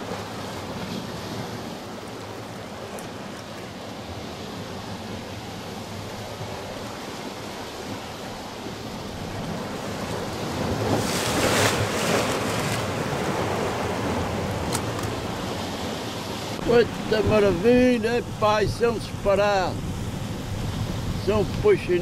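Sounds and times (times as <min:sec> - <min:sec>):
waves washing on rocky shore: 0:00.0 - 0:22.0
wave splashing on rocks: 0:05.8 - 0:22.0.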